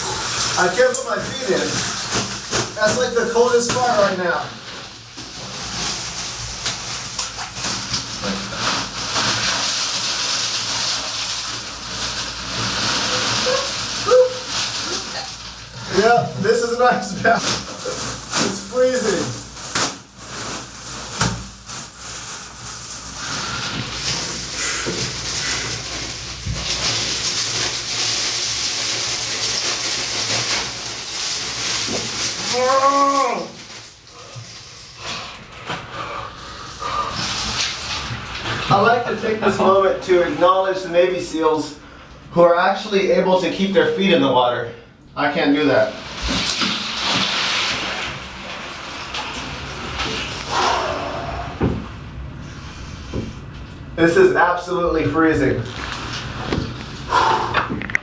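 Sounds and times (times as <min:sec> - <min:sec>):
ice cubes clattering and splashing: 0:00.0 - 0:34.4, 0:45.8 - 0:50.5
ice cubes splashing into water: 0:46.0 - 0:49.7.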